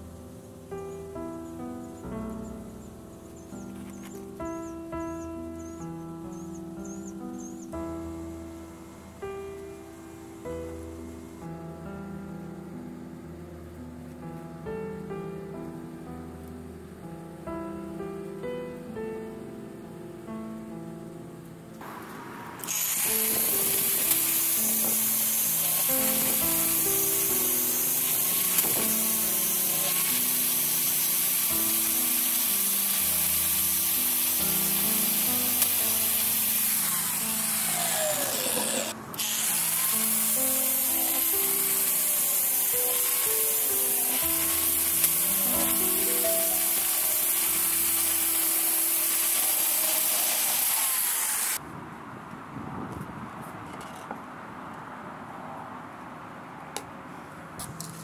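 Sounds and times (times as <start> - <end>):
power grinder cutting cement: 21.8 - 51.6
background music: 22.6 - 50.2.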